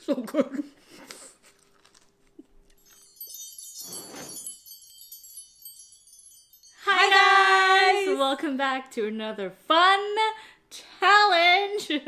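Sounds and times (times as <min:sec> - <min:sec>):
high tinkling wind chimes: 0:02.8 - 0:08.1.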